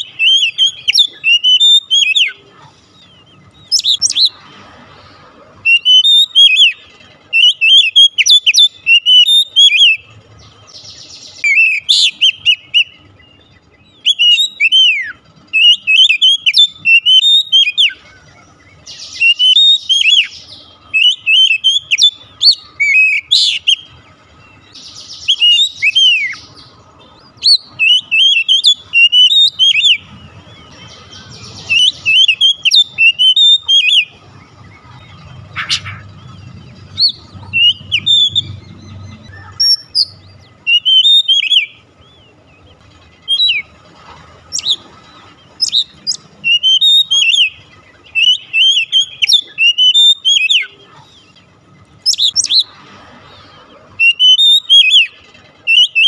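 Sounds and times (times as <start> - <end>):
bird singing whistled notes: 0.0 - 4.4, 5.6 - 43.8, 44.5 - 51.0, 52.0 - 52.7, 53.6 - 56.0.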